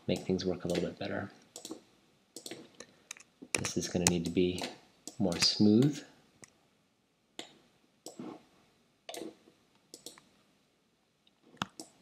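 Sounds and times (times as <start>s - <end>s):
computer mouse and keyboard clicks: 1.6s - 1.8s, 2.4s - 5.6s, 9.1s - 10.3s.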